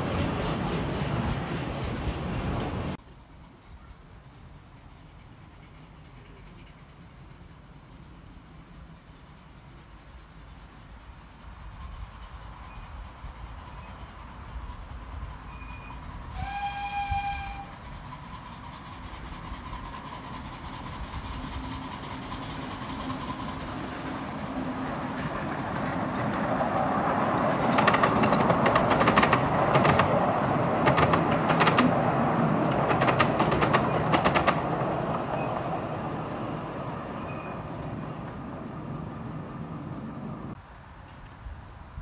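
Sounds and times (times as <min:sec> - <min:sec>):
train rumbling past: 0:00.0 - 0:42.0
miniature locomotive whistle: 0:15.4 - 0:20.8
wheel clicks over rail joints: 0:27.6 - 0:32.0, 0:32.6 - 0:35.3.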